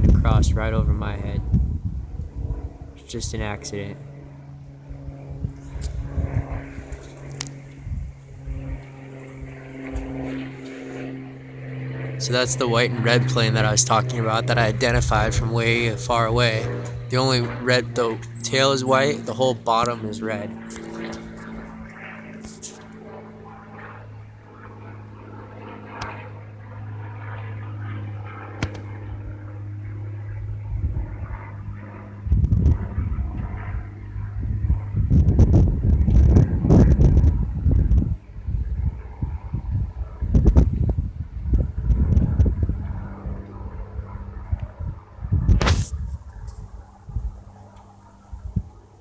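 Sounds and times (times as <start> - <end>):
wind buffeting microphone: 0.0 - 24.0, 26.9 - 49.0
propeller plane engine drone: 0.0 - 49.0.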